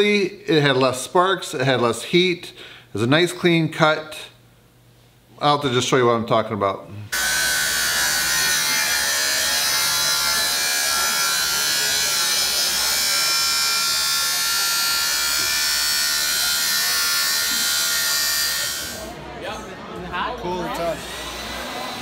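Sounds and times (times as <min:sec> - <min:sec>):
angle grinder cutting steel: 0:07.2 - 0:19.2, 0:20.9 - 0:22.0.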